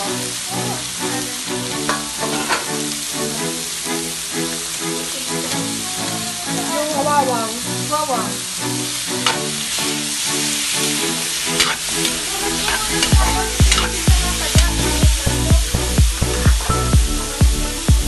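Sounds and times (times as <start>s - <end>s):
background music with beat: 0.0s - 18.0s
meat sizzling in a wok: 0.0s - 18.0s
metal utensil scraping pan: 1.8s - 3.0s, 9.2s - 15.0s, 16.2s - 16.9s.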